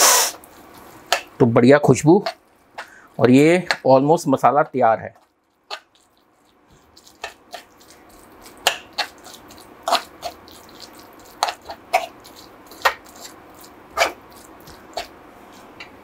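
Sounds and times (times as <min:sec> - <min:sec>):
spoon scraping metal pan: 0:13.9 - 0:14.2.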